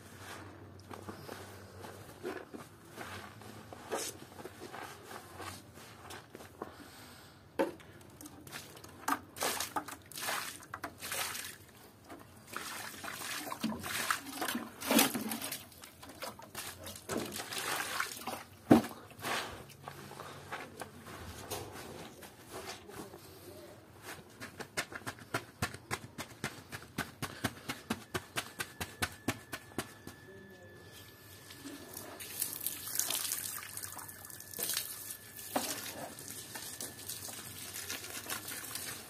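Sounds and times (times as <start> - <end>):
water pouring and splashing: 8.4 - 11.8, 12.4 - 18.7, 31.9 - 39.0.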